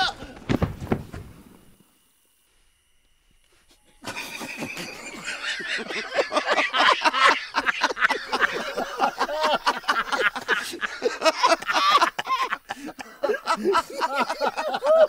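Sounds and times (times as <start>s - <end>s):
men laughing heartily: 3.7s - 15.0s.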